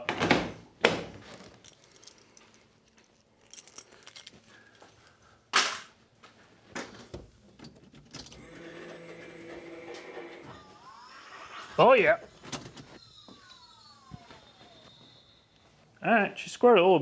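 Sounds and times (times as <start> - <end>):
keys jangling: 1.4 - 4.9.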